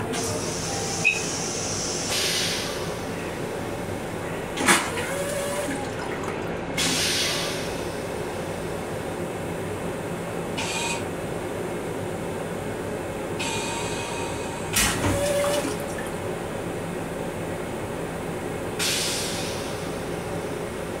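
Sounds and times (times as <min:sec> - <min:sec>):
train hum: 0:00.0 - 0:21.0
toilet flushing: 0:04.5 - 0:07.9, 0:14.7 - 0:16.4.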